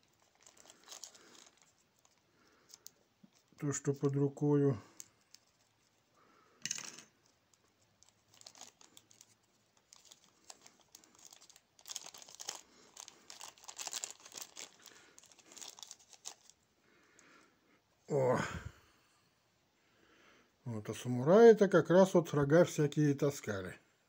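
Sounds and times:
plastic bag crinkling: 0.0 - 4.2, 7.2 - 16.7.

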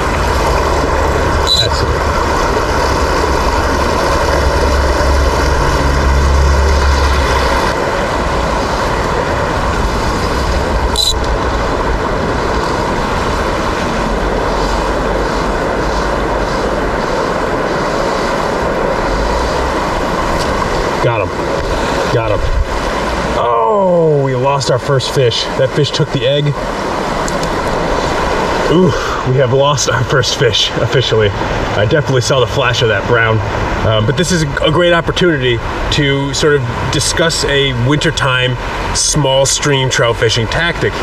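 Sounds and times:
low rumble: 0.0 - 23.5
stream rushing over rocks: 0.0 - 41.0.

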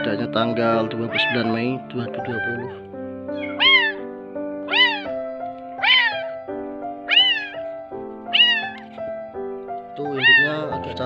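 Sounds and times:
background music with held notes: 0.0 - 11.0
kitten meowing: 1.1 - 1.6, 2.2 - 4.1, 4.7 - 6.4, 7.0 - 9.0, 10.0 - 10.7.

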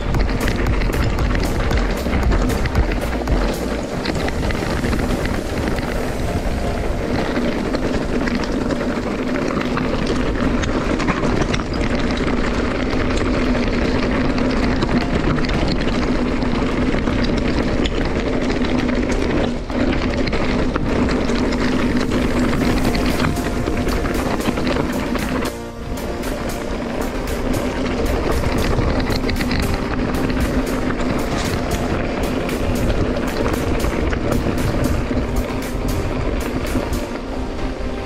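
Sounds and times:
mountain bike riding noise: 0.0 - 38.0
wind on microphone: 0.0 - 38.0.

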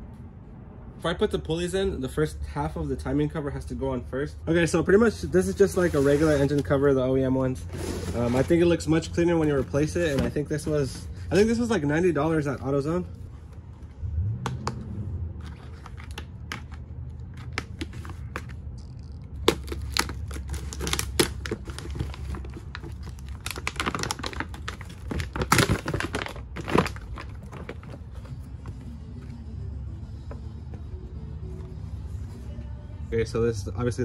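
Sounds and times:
plastic bag and cardboard crinkling: 5.5 - 6.9, 7.5 - 13.0, 17.4 - 28.9.

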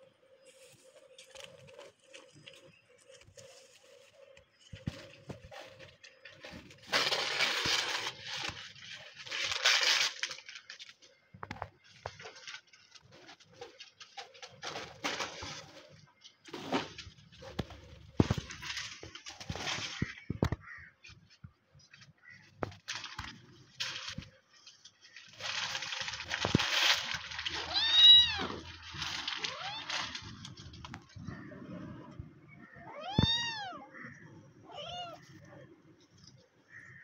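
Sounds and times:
leaves crunching and rustling: 0.4 - 11.0, 22.6 - 31.5.

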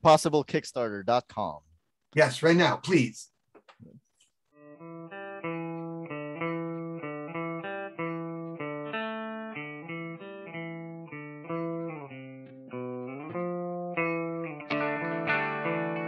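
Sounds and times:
plucked string tune: 4.6 - 16.0.

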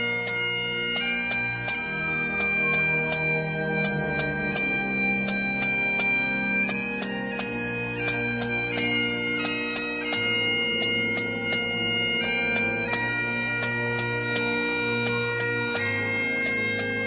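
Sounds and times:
bagpipes playing a tune: 0.0 - 17.0.

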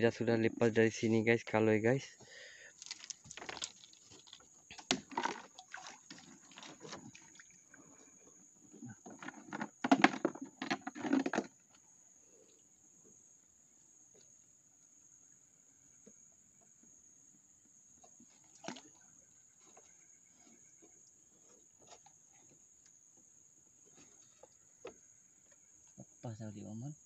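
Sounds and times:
river water splashing: 2.8 - 8.1
knocks and rustles: 8.8 - 11.6.

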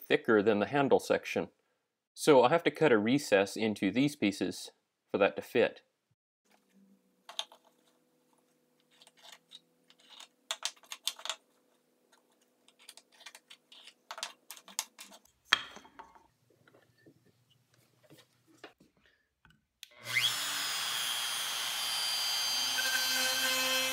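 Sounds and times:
wooden pieces clicking and tapping: 7.3 - 7.7, 8.9 - 11.5, 12.1 - 16.8.

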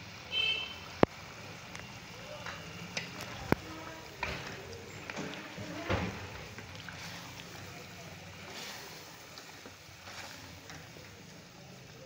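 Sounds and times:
food hissing in pan: 3.1 - 12.0.

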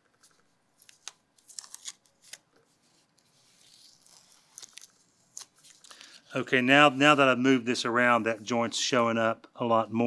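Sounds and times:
tape crackling: 0.0 - 6.3.

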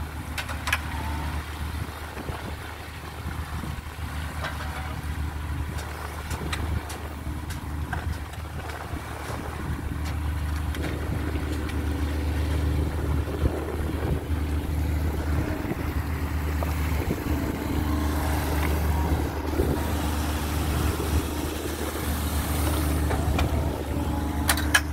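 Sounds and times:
boat engine droning: 0.0 - 24.9
sea water hissing: 11.9 - 24.4.

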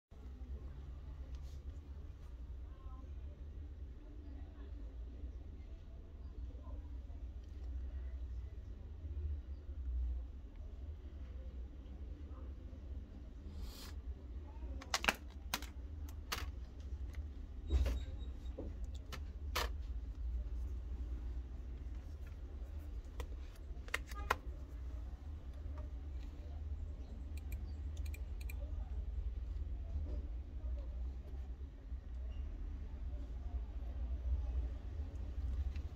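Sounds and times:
keyboard and mouse clicks: 14.8 - 17.2, 27.3 - 28.7.

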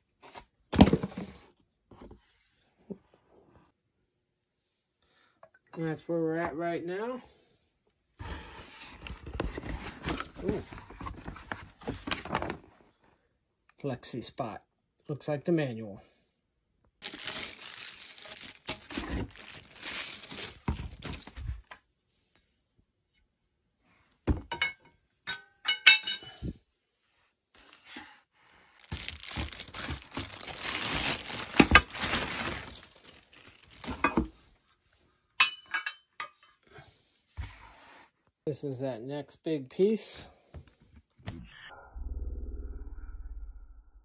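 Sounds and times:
plastic wrapping crinkling: 17.0 - 21.6, 28.7 - 34.3
metal parts clinking: 25.3 - 26.4.

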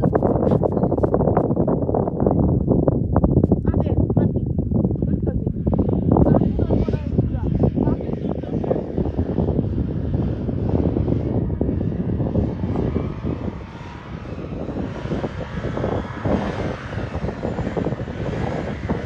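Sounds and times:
wind rumbling on microphone: 0.0 - 19.0
drone propellers whining: 5.2 - 19.0.

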